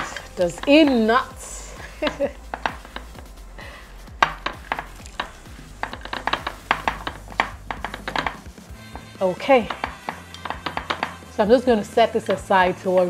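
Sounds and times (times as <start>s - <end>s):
vegetables clacking against glass dish: 2.1s - 3.2s, 4.1s - 9.0s, 9.6s - 11.2s.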